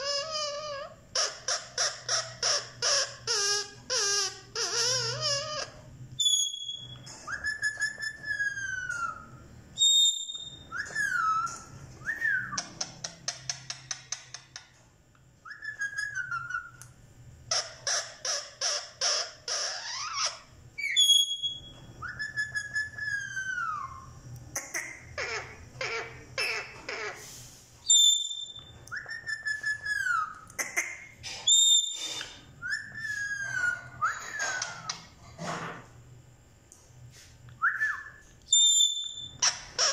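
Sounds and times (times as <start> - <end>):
parakeet whistling: 0.0 - 13.5, 15.4 - 16.9, 17.5 - 24.2, 27.8 - 30.4, 31.4 - 35.0, 37.6 - 39.9.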